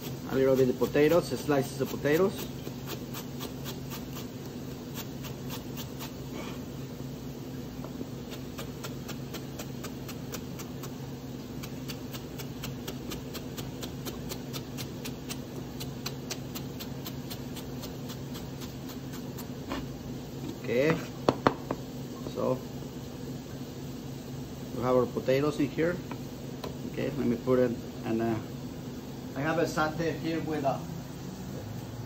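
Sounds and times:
steady low hum: 0.0 - 32.0
knife tapping on cutting board: 21.3 - 21.8.

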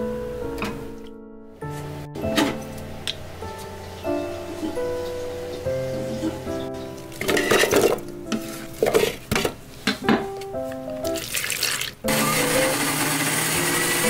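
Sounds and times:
background music: 0.0 - 14.0
blender grinding: 12.1 - 14.0.

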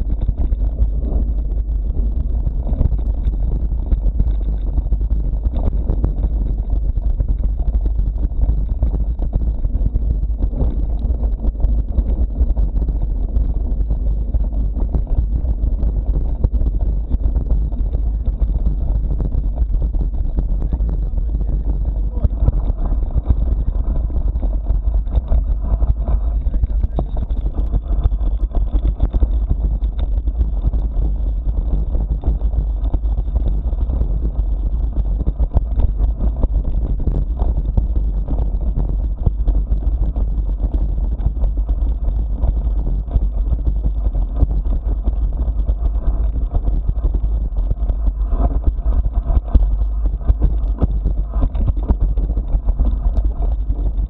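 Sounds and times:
vehicle rattling on bumpy track: 0.0 - 52.1
wind buffeting microphone: 0.0 - 54.0.

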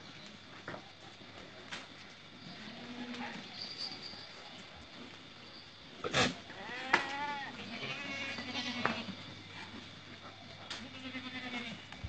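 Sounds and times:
goats bleating: 6.5 - 9.2, 10.7 - 11.9.

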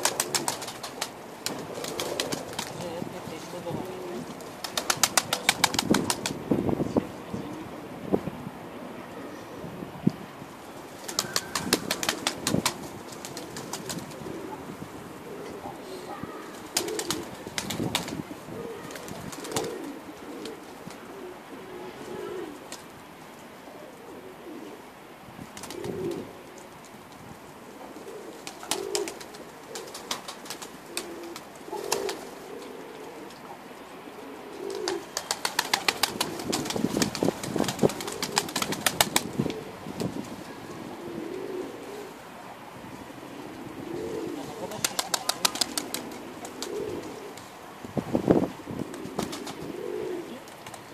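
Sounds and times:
rapid wing flapping: 0.0 - 3.0, 4.2 - 6.4, 11.0 - 14.4, 16.5 - 21.0, 25.5 - 26.3, 28.4 - 32.4, 34.7 - 40.3, 44.6 - 47.5, 48.8 - 50.9
pigeons cooing: 0.0 - 8.0, 10.6 - 26.6, 27.6 - 50.9.

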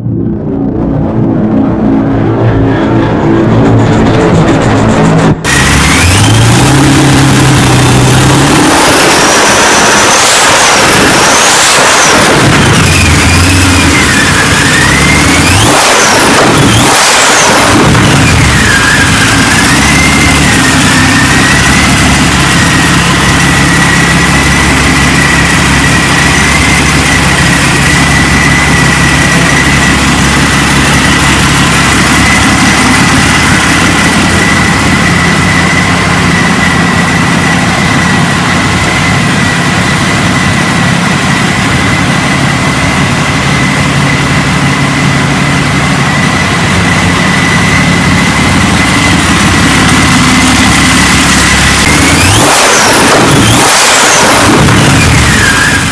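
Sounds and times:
high supercharger whine: 0.0 - 55.9
aircraft engine idling: 18.0 - 52.2.

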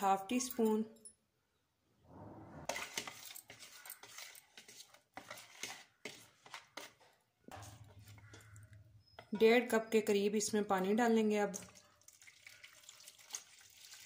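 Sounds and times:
spoon clinking and scraping bowl: 2.6 - 10.2.

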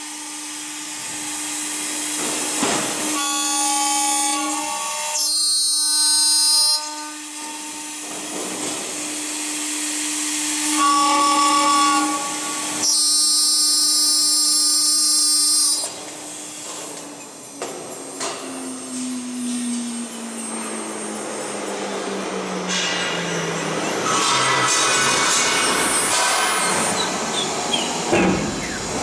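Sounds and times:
shrill metal cutting: 3.0 - 8.1, 9.9 - 29.0
spindle whine: 13.3 - 29.0.

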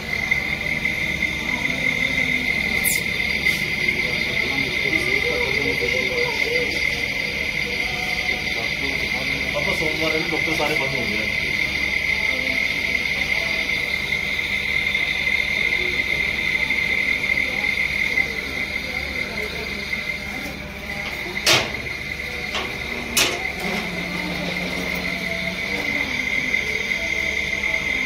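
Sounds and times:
high-pitched insect trill: 0.0 - 11.4.

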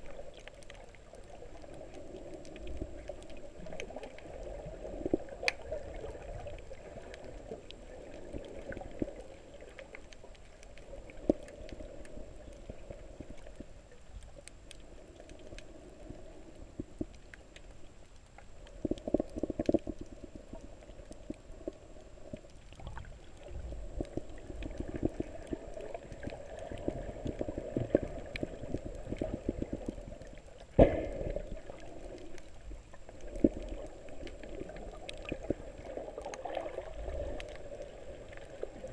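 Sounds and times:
muffled underwater rushing water: 0.0 - 38.9
small clicks: 5.0 - 5.6.

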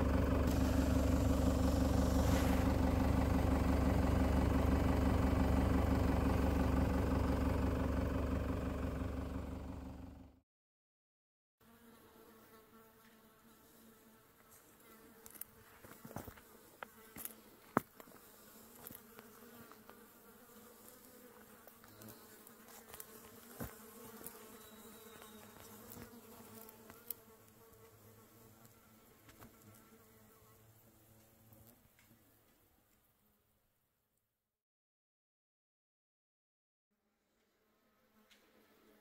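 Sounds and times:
flies buzzing: 0.0 - 7.6, 11.6 - 31.8.

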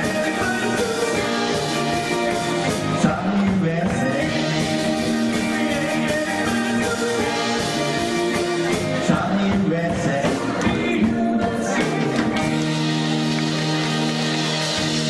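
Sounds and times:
person singing: 0.0 - 13.3
live rock band playing: 0.0 - 15.0.

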